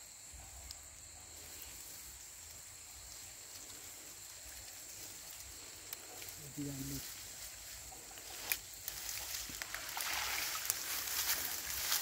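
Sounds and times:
faint ticks: 0.4s - 1.2s, 3.4s - 6.4s
wet net rustling: 8.3s - 12.0s.

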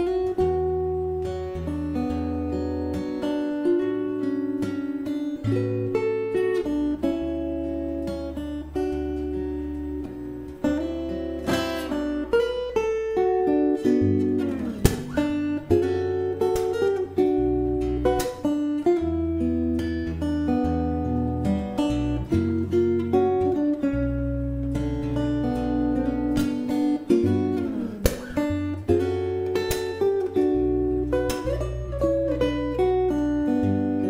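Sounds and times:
fingerstyle acoustic guitar: 0.0s - 34.0s
guitar glide ending in hit: 14.2s - 15.8s.

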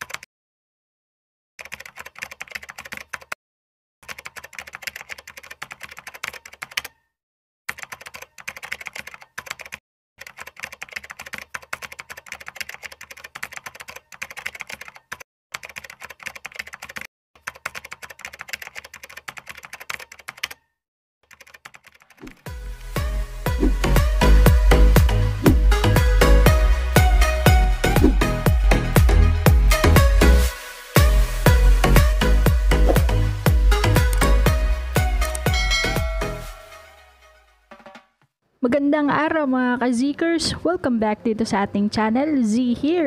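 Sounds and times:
computer keyboard typing: 0.0s - 0.3s, 1.6s - 3.4s, 4.0s - 7.0s, 7.7s - 22.4s.

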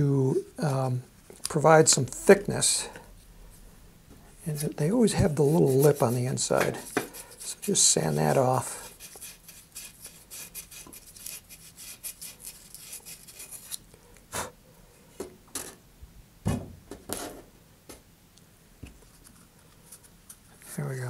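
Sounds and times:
sandpaper rasping on metal ring: 4.5s - 13.8s.

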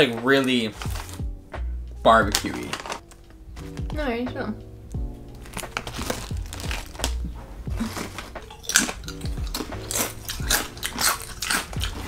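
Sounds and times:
background music with bass line: 0.0s - 12.0s
chips bag crinkling and crunching: 2.3s - 3.2s, 5.4s - 7.2s, 7.8s - 12.0s.

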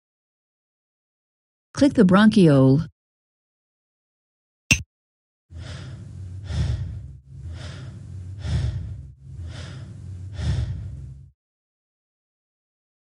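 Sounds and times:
labored breathing: 5.5s - 11.3s.

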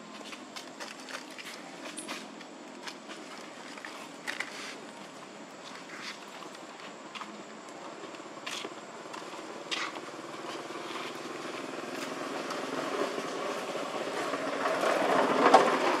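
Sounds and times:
motorbike engine approaching: 9.2s - 16.0s.

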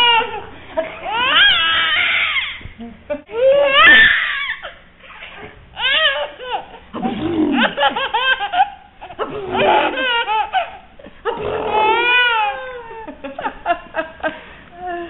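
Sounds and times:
baby squealing and laughing: 1.0s - 2.6s, 3.4s - 6.8s, 7.9s - 10.8s, 11.5s - 12.9s.

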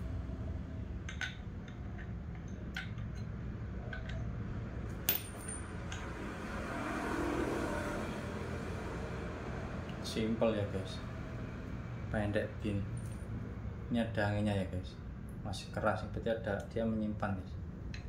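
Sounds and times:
steady low hum: 0.0s - 6.9s, 7.7s - 18.0s
small metal parts clinking: 4.9s - 6.0s.

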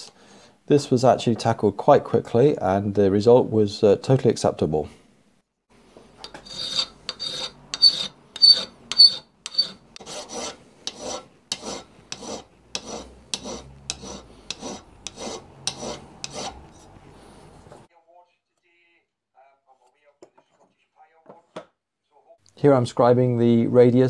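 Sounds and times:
file rasping on metal: 6.2s - 17.0s.

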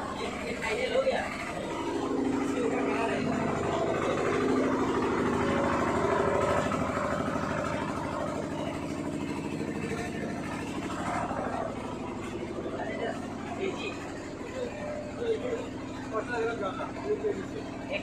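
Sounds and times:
woodworking machinery motor hum: 0.0s - 18.0s.

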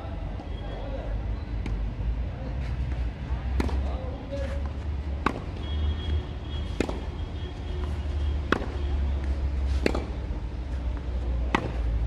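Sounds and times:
rackets hitting tennis ball: 3.5s - 5.7s, 6.6s - 7.2s, 7.8s - 12.0s.

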